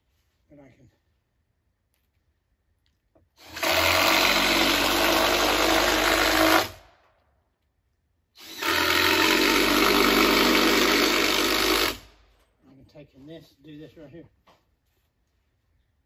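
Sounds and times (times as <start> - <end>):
power drill driving screws: 3.4 - 6.8, 8.4 - 12.1.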